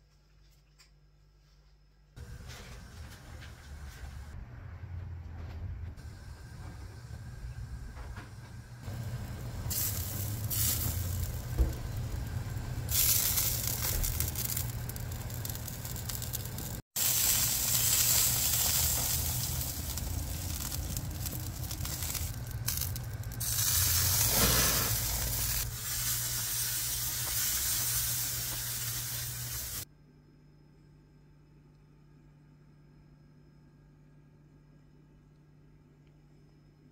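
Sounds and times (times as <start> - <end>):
steady low hum: 0.0 - 36.9
chicken sizzling on grill: 8.8 - 29.8.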